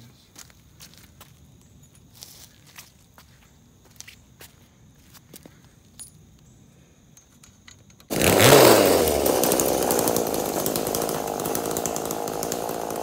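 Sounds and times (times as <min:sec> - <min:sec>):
two-stroke engine running rough: 0:08.1 - 0:13.0.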